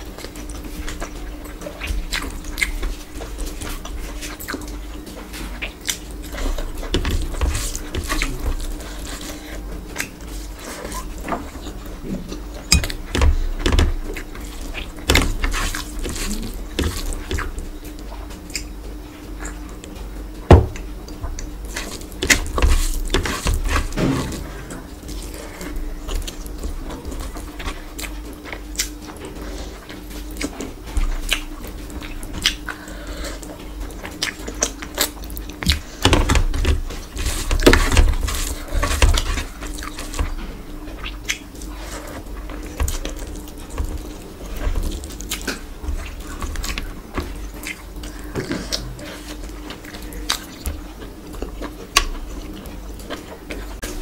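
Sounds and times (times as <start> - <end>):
chewing and lip smacks: 25.0 - 36.0, 40.9 - 54.0.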